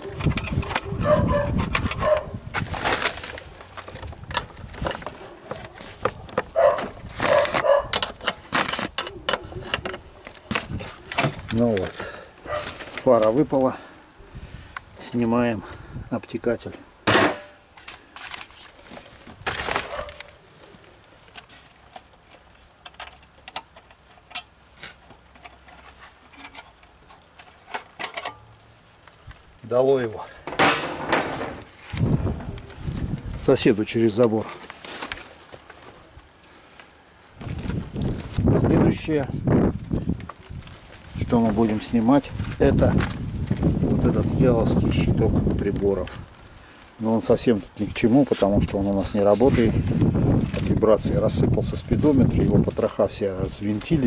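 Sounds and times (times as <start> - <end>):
plastic fairing clicks and rattles: 0.0 - 12.1, 21.2 - 28.4.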